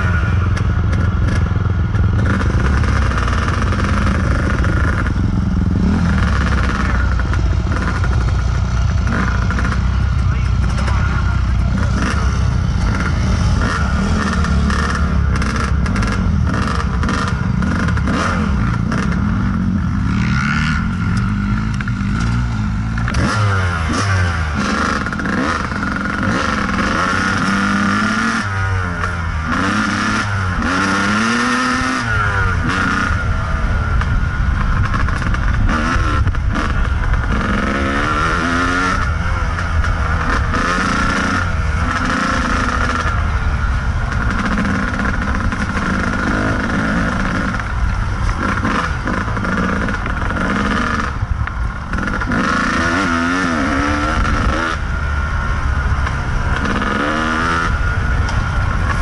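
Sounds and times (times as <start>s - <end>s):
bike rattling over ground: 0.0s - 23.3s
dirt bike engine revving: 0.0s - 59.0s.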